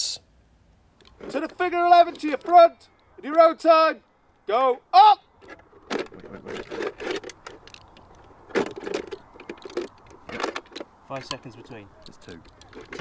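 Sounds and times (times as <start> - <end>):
machine gun loading clicks and rattles: 1.0 - 3.2, 5.4 - 13.0.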